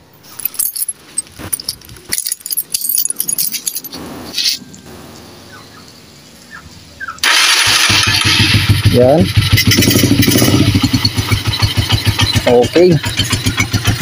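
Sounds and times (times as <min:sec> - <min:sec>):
keys jangling: 0:00.2 - 0:04.6
electric starter engaging: 0:07.2 - 0:11.4
motorcycle engine starting: 0:07.2 - 0:14.0.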